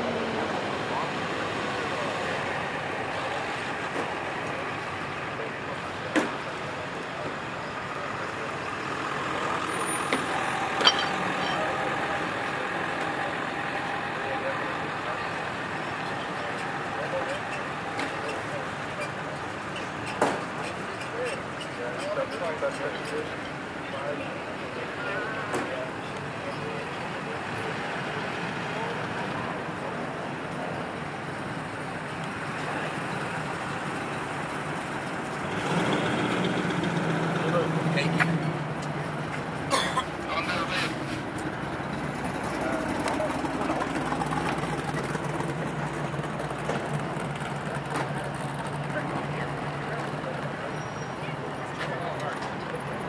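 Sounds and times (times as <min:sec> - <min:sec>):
car engines running: 0:00.0 - 0:53.0
vehicles driving slowly past: 0:00.0 - 0:53.0
sharp clanks: 0:10.1 - 0:11.8.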